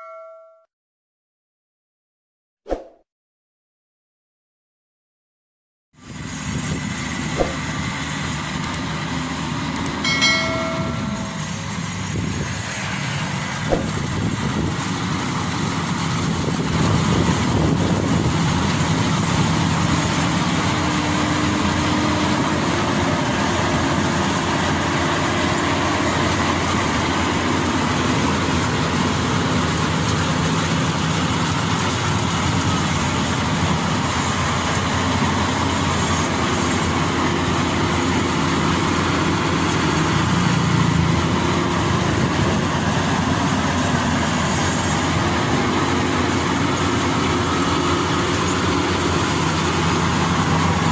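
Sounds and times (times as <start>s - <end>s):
brief tone: 0.0s - 0.7s, 10.1s - 11.6s
combine harvester running: 6.0s - 50.9s.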